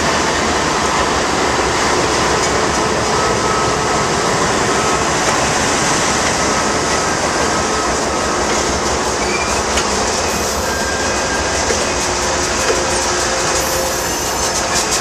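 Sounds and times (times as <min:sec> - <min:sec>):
diesel locomotives passing: 0:00.0 - 0:15.0
train wheels rolling on rails: 0:00.0 - 0:15.0.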